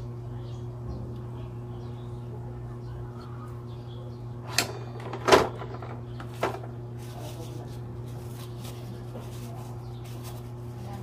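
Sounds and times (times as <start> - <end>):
steady low hum: 0.0 - 11.0
tools clunking: 4.5 - 6.7.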